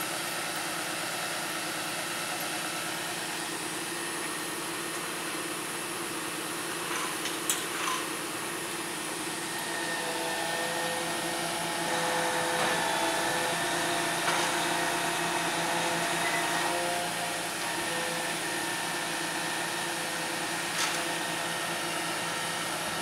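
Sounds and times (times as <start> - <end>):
truck engine running: 0.0 - 23.0
crane hydraulics: 9.1 - 23.0.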